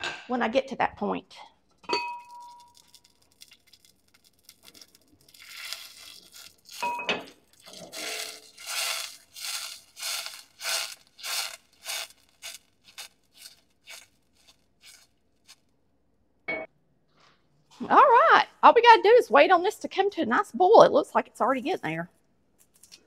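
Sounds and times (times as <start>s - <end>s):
metal clink: 1.8s - 2.9s
saucepan scraping on grate: 5.3s - 15.6s.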